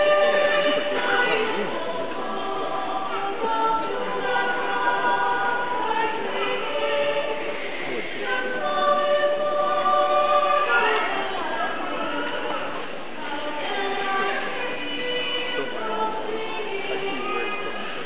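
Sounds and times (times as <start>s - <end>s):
choir singing: 0.0s - 18.0s.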